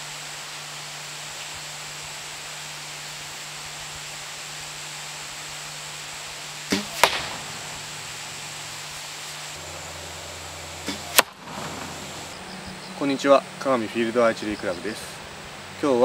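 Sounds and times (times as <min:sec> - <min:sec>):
steady hiss: 0:00.0 - 0:16.0
bow string snapping: 0:06.7 - 0:07.8, 0:10.8 - 0:11.9
sharp crack: 0:06.7 - 0:09.8, 0:10.6 - 0:12.3.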